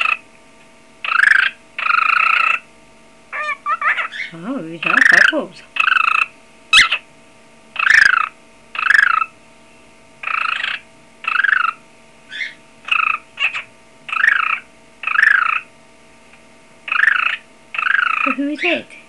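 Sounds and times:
cockatiel buzzy trilled calls: 0.0s - 0.2s, 1.0s - 2.7s, 3.3s - 7.1s, 7.8s - 9.4s, 10.2s - 15.7s, 16.9s - 18.8s.

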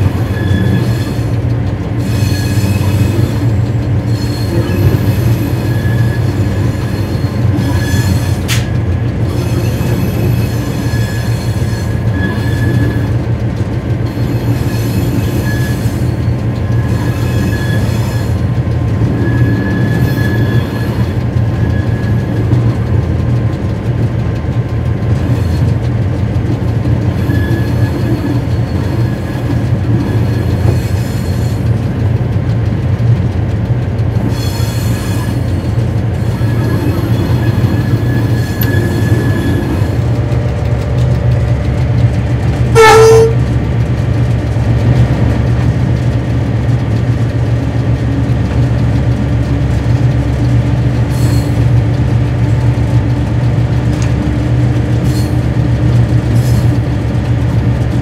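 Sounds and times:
wheel squeals: 0.0s - 13.3s, 14.0s - 22.9s, 27.1s - 31.8s, 34.2s - 40.5s, 42.7s - 43.4s, 51.0s - 51.9s, 55.0s - 57.0s
diesel locomotive engine drone: 0.0s - 58.0s
sharp click: 8.4s - 8.7s.

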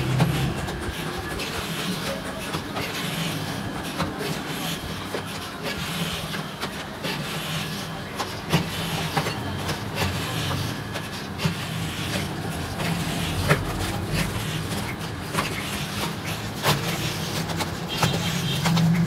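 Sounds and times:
mixer machine low drone: 0.0s - 19.0s.

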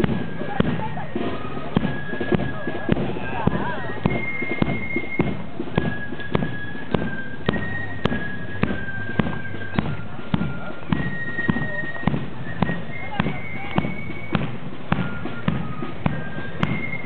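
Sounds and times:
drum beating steadily: 0.0s - 17.0s
marching band playing: 0.0s - 17.0s.

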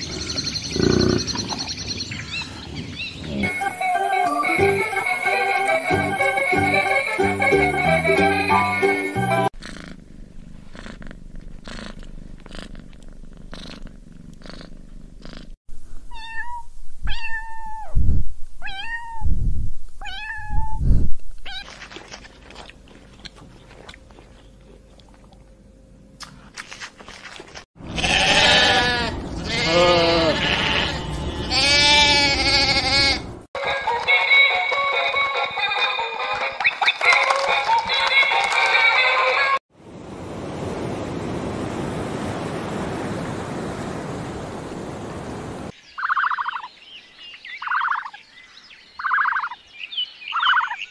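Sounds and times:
cat meowing: 16.1s - 17.9s, 18.6s - 19.3s, 20.0s - 20.8s, 28.0s - 33.2s
sheep bleating: 27.9s - 33.4s.

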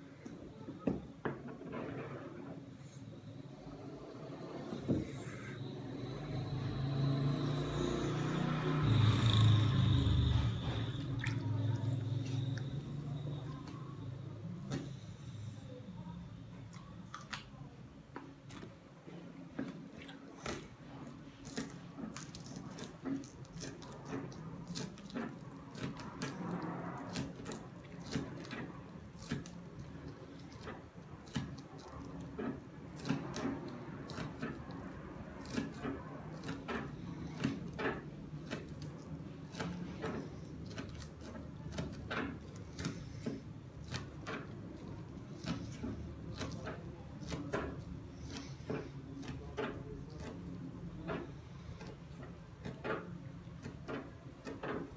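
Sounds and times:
knife clicking and scraping on fish: 35.4s - 50.5s, 51.1s - 54.9s.

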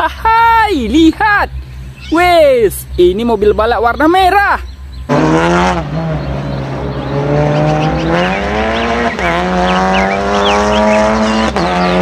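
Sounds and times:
race car engine accelerating: 5.0s - 12.0s.

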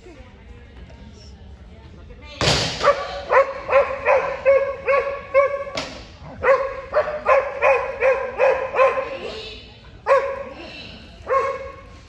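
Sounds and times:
dog barking: 2.8s - 9.4s, 10.0s - 10.5s, 11.2s - 12.0s.

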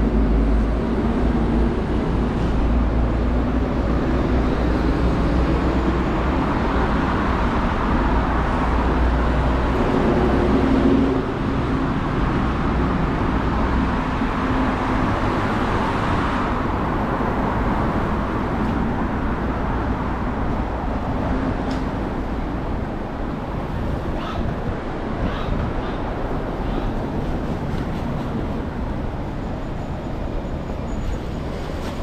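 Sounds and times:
city road traffic: 0.0s - 32.0s.

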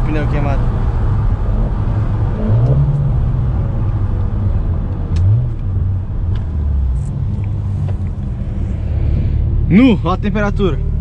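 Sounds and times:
car engine while driving: 0.0s - 11.0s
road rumble: 0.0s - 11.0s.

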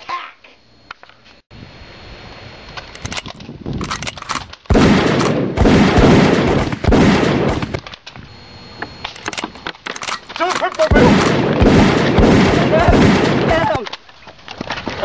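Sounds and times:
machine-gun fire: 3.9s - 7.8s, 10.6s - 13.8s.

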